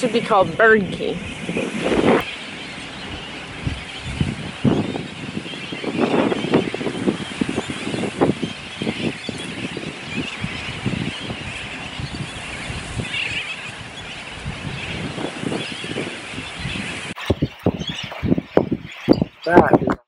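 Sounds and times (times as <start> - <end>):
low rumbling: 0.0 - 20.0
seabird colony calling: 0.0 - 20.0.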